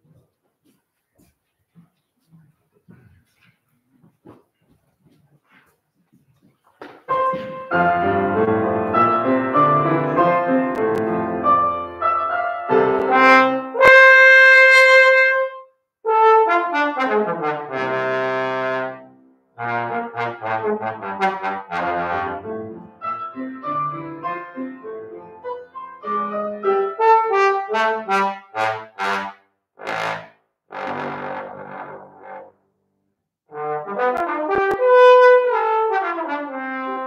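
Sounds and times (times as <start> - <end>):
piano accompaniment: 6.8 - 15.6, 16.4 - 29.0, 33.5 - 37.0
trombone playing fast runs: 11.4 - 22.7, 26.9 - 32.5, 33.5 - 37.0.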